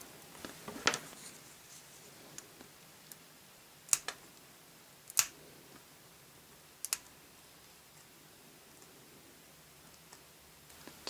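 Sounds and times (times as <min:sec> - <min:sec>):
plastic nippers snapping plastic: 0:05.1 - 0:05.4.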